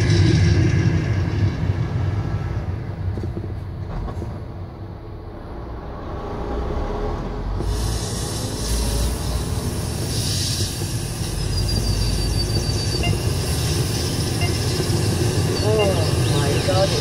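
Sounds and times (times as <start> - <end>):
large vehicle engine rumble: 0.0 - 17.0
hiss: 7.6 - 17.0.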